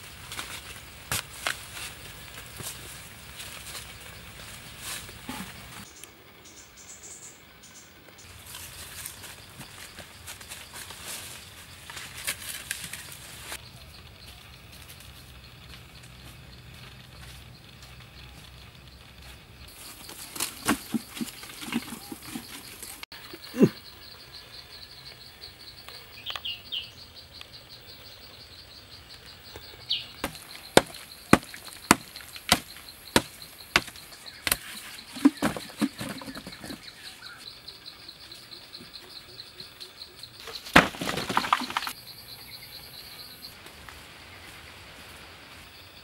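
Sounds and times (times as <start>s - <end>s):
insects chirring: 0.0s - 46.0s
stick digging into hard soil: 30.2s - 36.8s.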